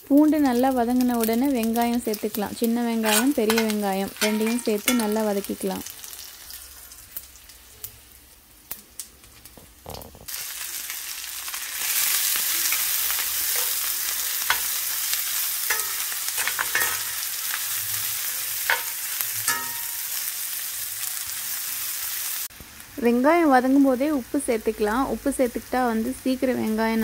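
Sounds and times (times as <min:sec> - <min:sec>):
onions sizzling in oil: 0:00.0 - 0:27.0
metal spoon scraping pan: 0:02.9 - 0:05.3, 0:12.6 - 0:15.0, 0:15.6 - 0:20.2.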